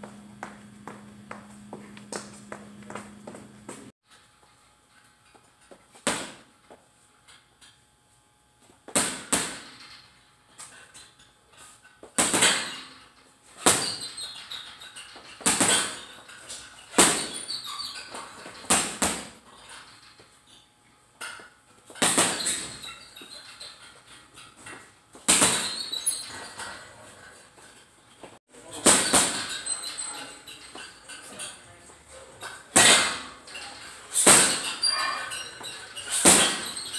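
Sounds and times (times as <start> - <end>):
boxing gloves punching heavy bag: 8.9 - 9.8, 12.1 - 12.8, 13.6 - 14.4, 15.3 - 16.2, 16.9 - 17.7, 18.4 - 19.4, 21.9 - 23.0, 25.2 - 26.4, 28.7 - 29.9, 32.7 - 33.4, 34.2 - 35.0, 36.1 - 36.9.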